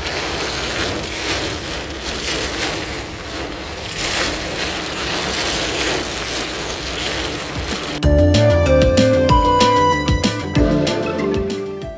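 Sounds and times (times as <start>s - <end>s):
wind and rain on microphone: 0.0s - 8.0s.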